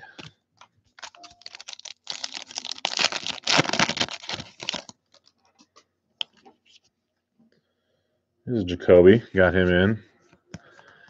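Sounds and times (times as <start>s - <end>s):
wrapper tearing and crinkling: 1.0s - 5.5s.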